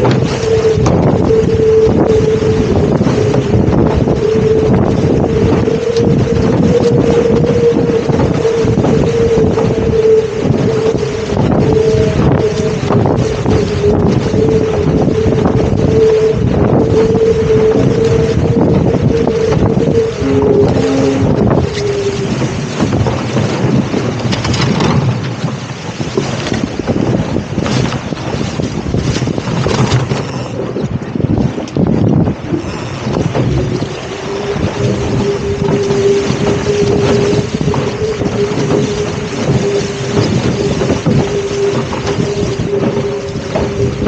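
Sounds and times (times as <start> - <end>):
water rushing along hull: 0.0 - 44.0
wind buffeting microphone: 0.0 - 44.0.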